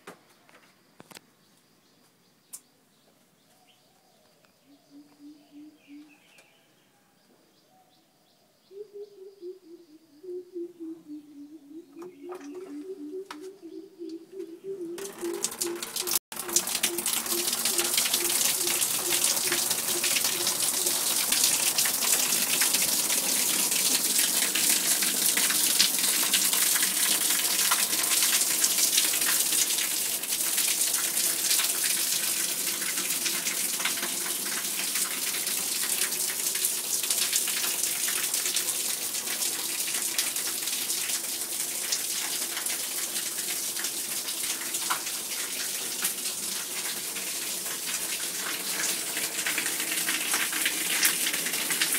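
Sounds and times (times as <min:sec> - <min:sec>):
water running and splashing: 0:15.0 - 0:51.9.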